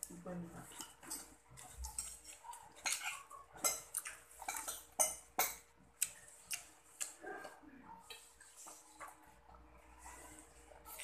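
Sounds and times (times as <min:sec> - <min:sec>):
person chewing: 0:00.8 - 0:09.2.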